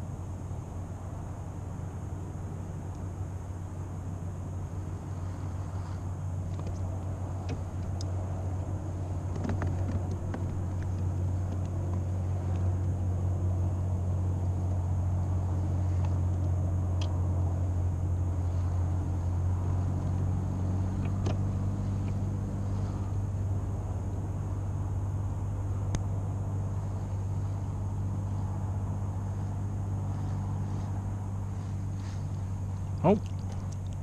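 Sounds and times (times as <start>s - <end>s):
low mechanical hum: 0.0s - 34.0s
faint clicks: 25.9s - 26.1s, 32.3s - 34.0s.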